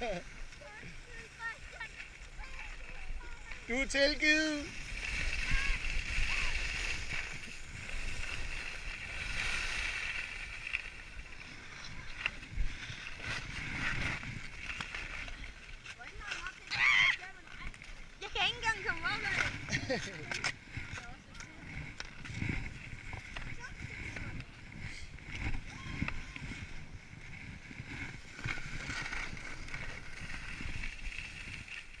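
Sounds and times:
skis scraping over snow: 0.0 - 32.0
wind buffeting microphone: 4.3 - 9.5, 16.2 - 31.7.

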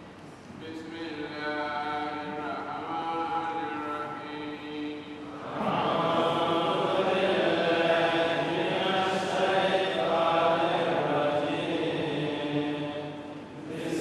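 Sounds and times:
man chanting melodically: 0.6 - 12.9.

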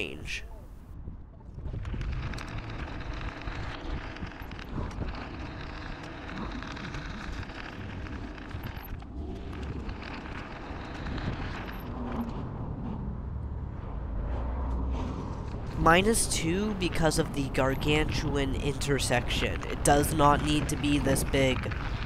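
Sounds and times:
wind rushing over microphone: 0.8 - 16.8
tyre and traffic noise: 1.7 - 22.0.

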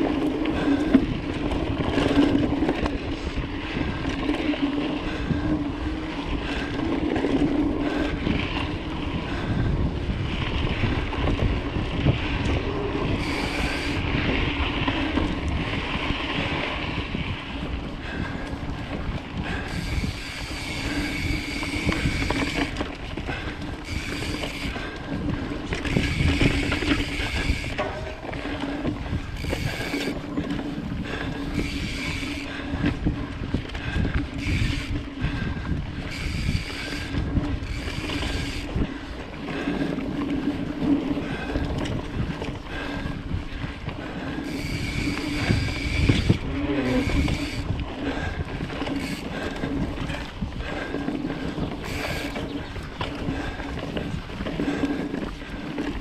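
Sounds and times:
bike rolling onto wooden bridge: 0.0 - 56.0
bike tyre and drivetrain noise: 0.0 - 56.0
wind rushing over microphone: 0.0 - 56.0.

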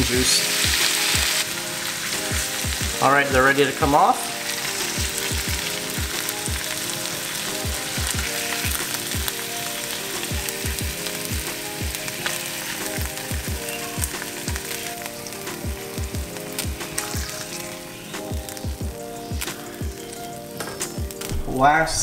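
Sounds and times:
fish sizzling in hot oil: 0.0 - 21.3
background music with bass beat: 2.1 - 3.5, 4.8 - 6.8, 7.5 - 9.6, 10.2 - 12.0, 12.8 - 21.5.

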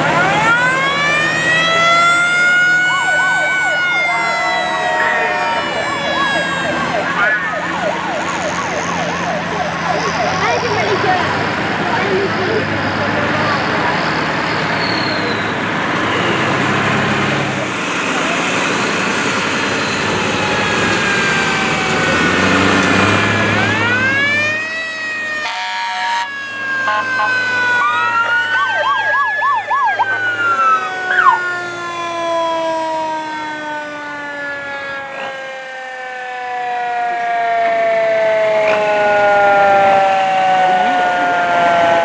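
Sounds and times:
truck engine running: 0.0 - 25.4
fire truck siren wailing: 0.0 - 42.0.

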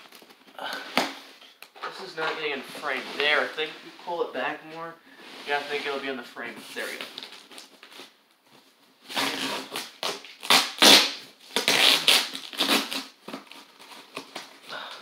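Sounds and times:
packing tape and cardboard tearing: 9.0 - 14.8.

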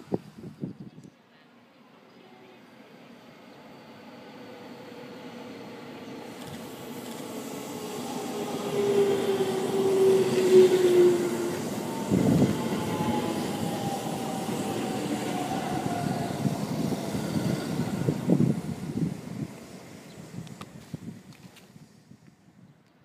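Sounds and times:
train motor whine: 3.2 - 21.5
wheels rumbling on rails: 5.8 - 21.7.

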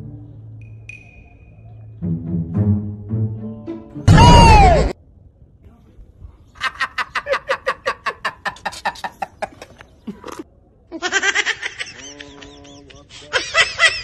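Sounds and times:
rapid pulsing laughter: 6.6 - 9.8.

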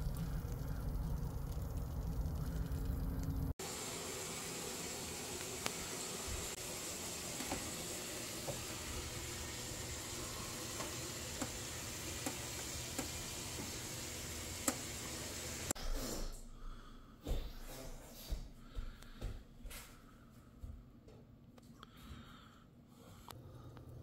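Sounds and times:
oven hiss: 3.1 - 15.8.

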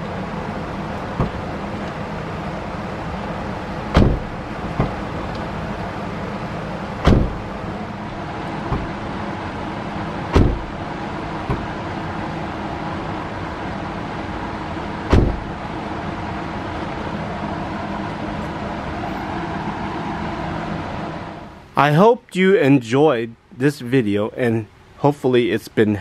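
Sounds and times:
car door shutting thump: 1.1 - 1.5, 3.9 - 5.2, 7.0 - 7.6, 8.6 - 9.0, 10.3 - 10.8, 11.4 - 11.8, 15.1 - 15.6.

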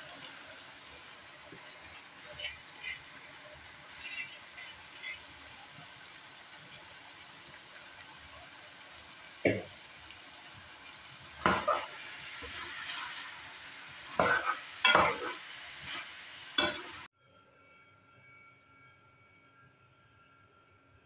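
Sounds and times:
food sizzling in metal pot: 0.0 - 17.1
spatula scraping pot: 1.5 - 5.8, 11.4 - 13.3, 14.1 - 17.0.

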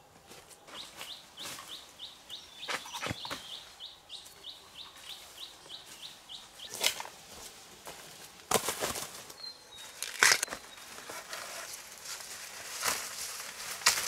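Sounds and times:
bird chirping: 0.6 - 7.0, 9.3 - 11.2
rustling: 6.7 - 14.0.

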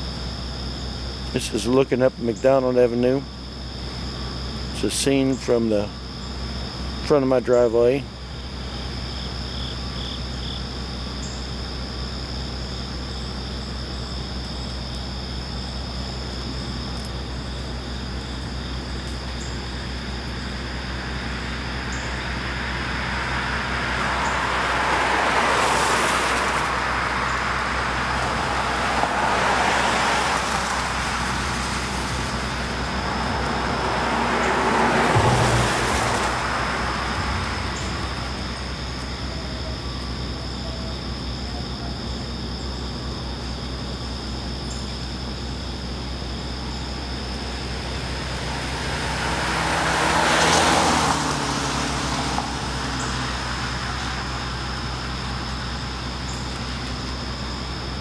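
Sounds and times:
car tyres hissing on wet road: 22.3 - 39.0, 47.6 - 57.5.

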